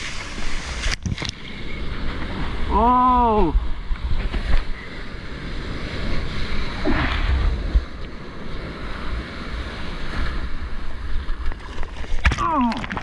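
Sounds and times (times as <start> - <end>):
wind buffeting microphone: 3.4 - 11.5
whitewater rushing and splashing: 5.7 - 13.0.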